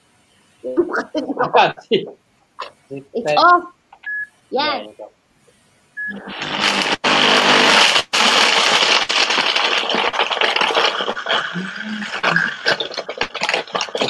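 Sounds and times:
blender crushing ice: 6.2s - 14.0s.

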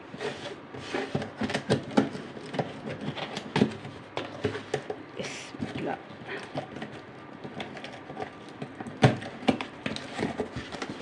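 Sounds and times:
cardboard box rustling and scraping: 0.0s - 4.9s, 9.0s - 11.0s.

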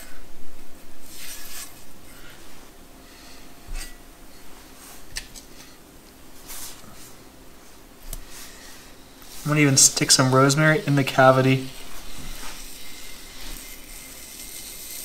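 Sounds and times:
butter hissing in skillet: 11.2s - 15.0s.

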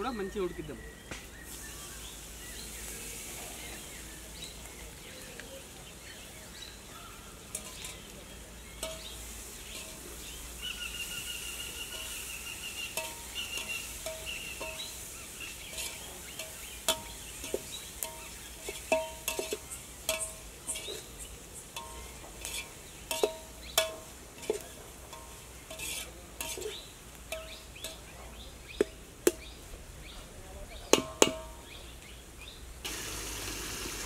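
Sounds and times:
metal spoon scraping a pot: 7.5s - 8.1s, 8.8s - 10.6s, 11.9s - 28.0s
bird calling: 8.8s - 22.2s.

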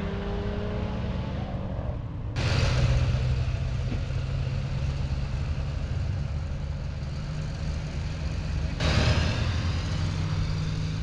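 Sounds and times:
diesel pickup engines droning: 0.0s - 11.0s
rush of noise: 8.8s - 11.0s.

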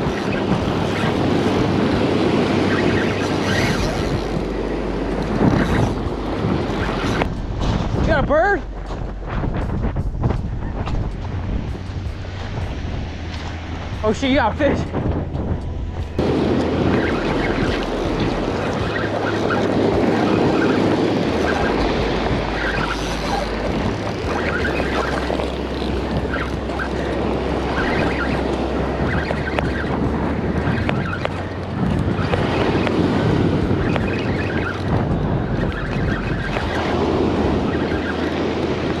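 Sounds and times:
wind buffeting microphone: 0.0s - 39.0s
surf breaking on stony beach: 16.2s - 39.0s.

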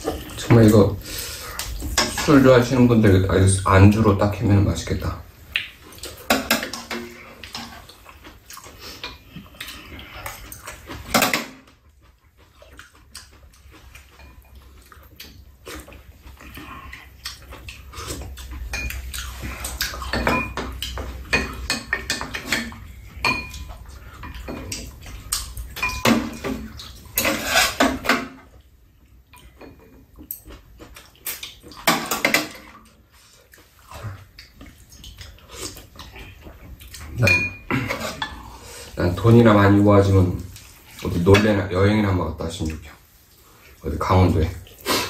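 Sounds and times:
utensils clinking on dishes: 18.4s - 24.9s, 25.7s - 28.4s, 37.2s - 38.4s.

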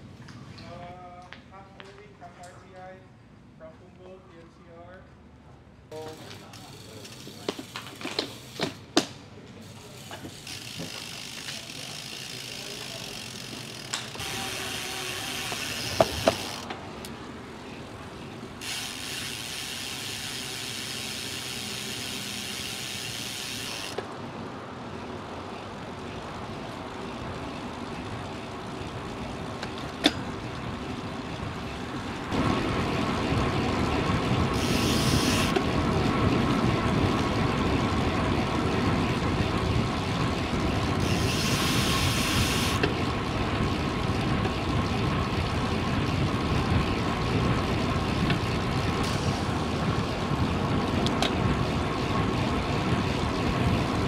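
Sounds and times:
bicycle tyre noise: 5.9s - 54.0s
freewheel hub ratcheting: 9.6s - 17.2s, 18.1s - 24.1s, 26.8s - 54.0s.

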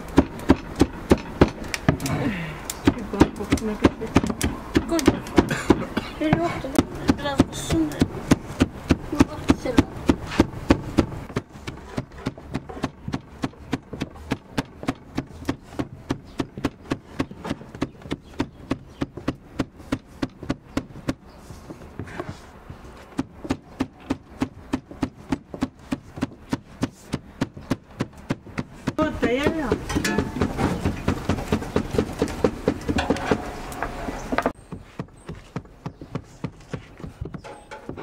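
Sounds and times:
cleaver chopping on wooden board: 0.1s - 2.2s, 2.8s - 22.4s, 23.0s - 38.0s.

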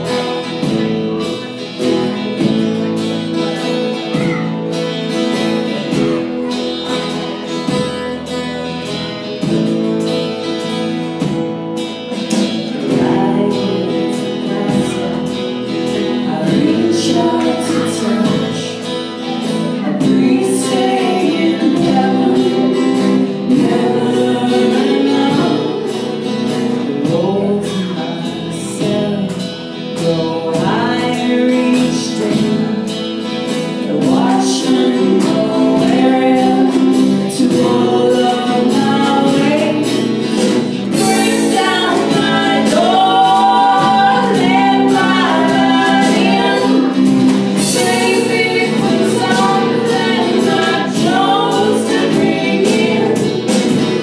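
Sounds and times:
strummed acoustic guitars: 0.0s - 54.0s
women singing together: 12.6s - 29.4s, 30.0s - 32.9s, 33.8s - 54.0s.

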